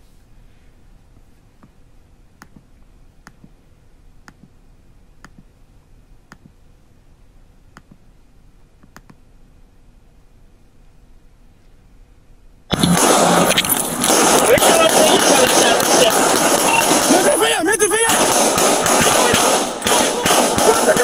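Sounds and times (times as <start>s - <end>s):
computer mouse clicking: 2.4s - 3.5s, 7.7s - 8.0s, 8.8s - 9.2s.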